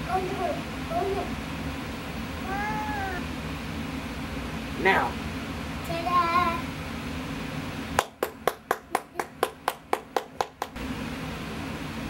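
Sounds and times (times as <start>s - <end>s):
hands clapping: 8.0s - 10.8s.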